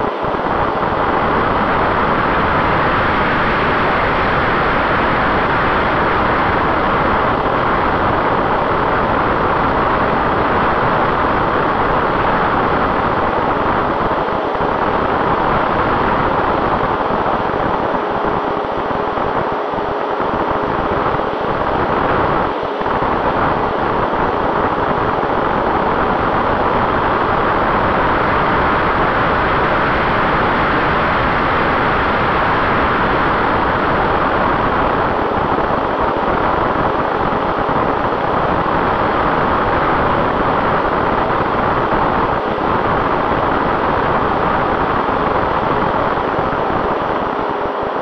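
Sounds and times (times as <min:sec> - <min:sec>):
wind noise: 0:00.0 - 0:48.0.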